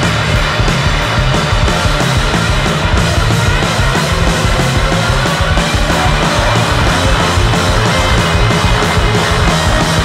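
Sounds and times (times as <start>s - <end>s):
bass guitar: 0.0s - 10.0s
drums: 0.0s - 10.0s
electric guitar: 0.0s - 10.0s.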